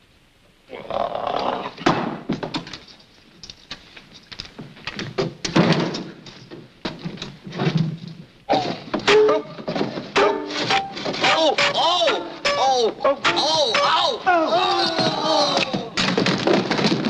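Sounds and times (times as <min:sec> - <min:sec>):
knocks thuds and clatters: 0:01.8 - 0:02.9, 0:04.5 - 0:11.8, 0:14.8 - 0:17.0.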